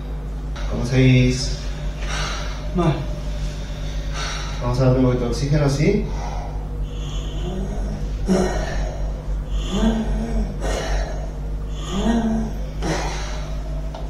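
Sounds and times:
steady low hum: 0.0 - 14.0
man gasping and groaning: 6.0 - 14.0.

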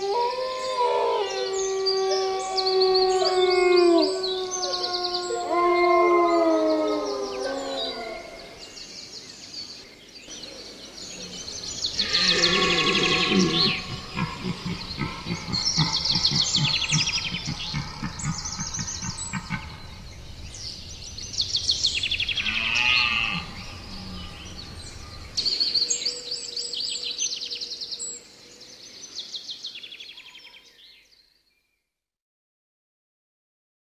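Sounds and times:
birds singing and calling: 0.0 - 31.6
low rhythmic pulsing: 12.8 - 22.4.

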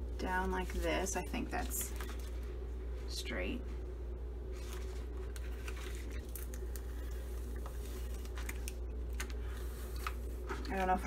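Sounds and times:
steady low hum: 0.0 - 11.0
plastic crinkling: 0.6 - 2.6, 4.5 - 11.0.

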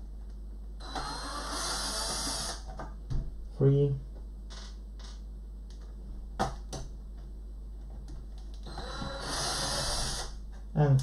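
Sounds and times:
electric screwdriver running: 0.8 - 2.6, 8.6 - 10.4.

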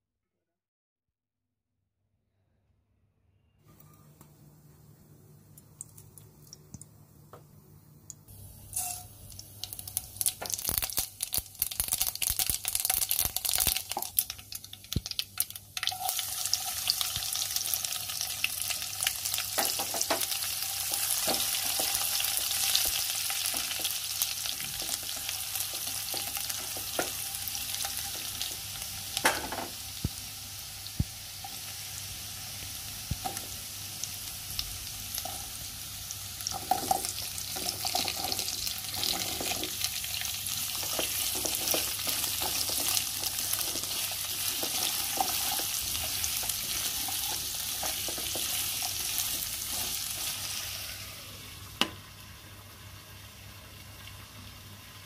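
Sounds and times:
seeds popping in hot oil: 8.0 - 31.6, 32.6 - 33.6, 36.4 - 50.6
garlic sizzling in oil: 8.3 - 55.0.

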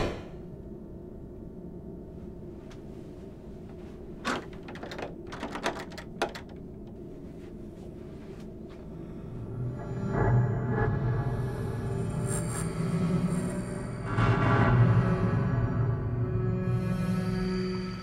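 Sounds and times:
low room hum: 0.0 - 16.4
door latch and handle clicks: 4.2 - 6.6.

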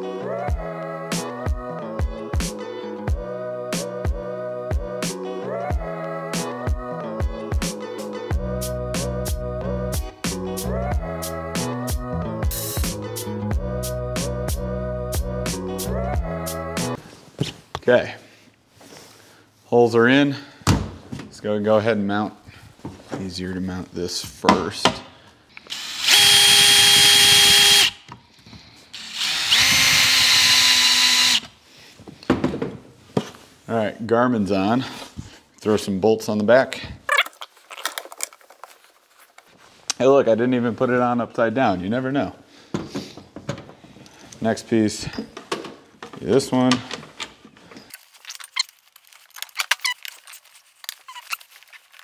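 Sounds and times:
drill motor whine: 25.7 - 28.0, 29.0 - 31.5
short squeaks: 49.4 - 51.9.

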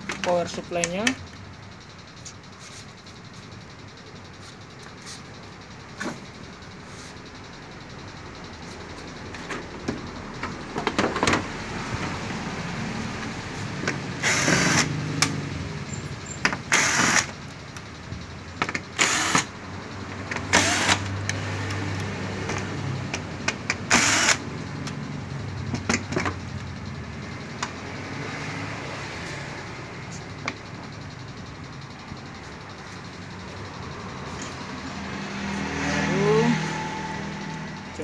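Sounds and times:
electric screwdriver whirring: 14.2 - 15.3, 16.6 - 17.3, 19.0 - 19.5, 20.5 - 22.1, 23.9 - 24.4.

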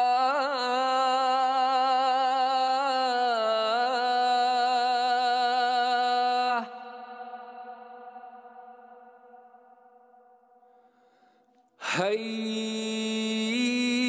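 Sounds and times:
man chanting call to prayer: 0.0 - 7.7, 11.8 - 14.0.

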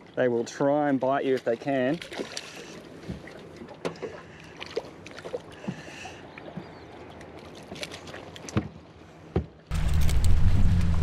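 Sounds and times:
clicks and knocks in aluminium boat: 1.4 - 4.2, 5.0 - 9.6.

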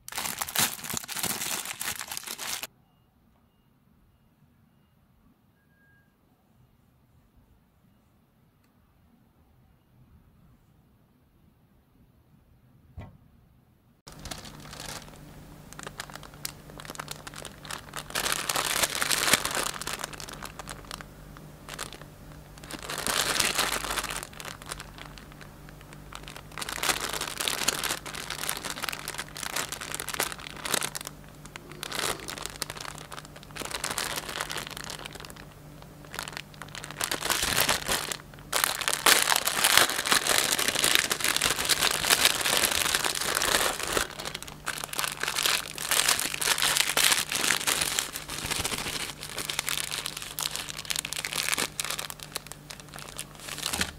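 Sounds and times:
plastic bag crinkling: 0.0 - 2.7, 14.1 - 53.9.

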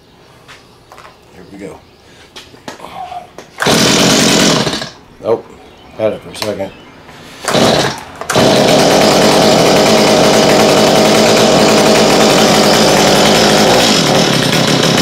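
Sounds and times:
chainsaw engine running: 3.6 - 5.0, 7.5 - 15.0.

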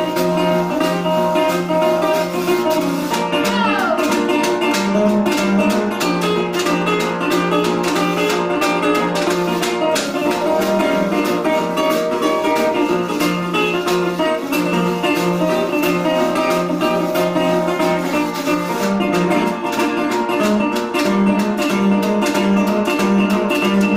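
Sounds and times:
fingerpicked resonator guitar blues: 0.0 - 23.9
washboard taps and scrapes: 0.0 - 23.9.

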